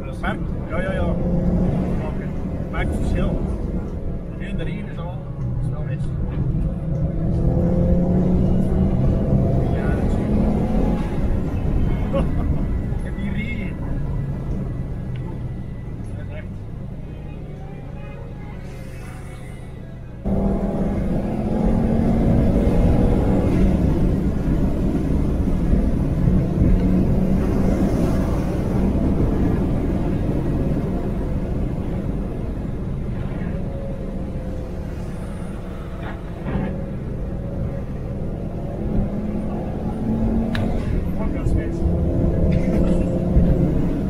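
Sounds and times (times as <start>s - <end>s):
car engine running under load: 18.7s - 44.0s.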